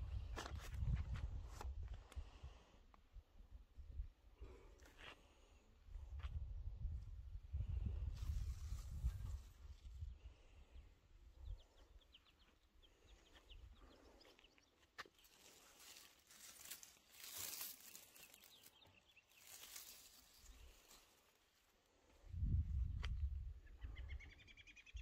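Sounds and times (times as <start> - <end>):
leaves rustling: 15.2 - 21.7
faint bird chirps: 23.6 - 25.0.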